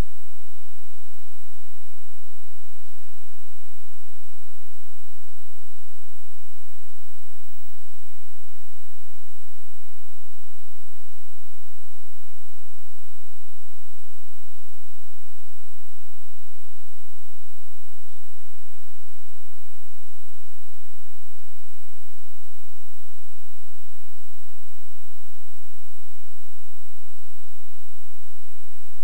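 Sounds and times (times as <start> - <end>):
electrical hum and buzz: 0.0 - 29.0.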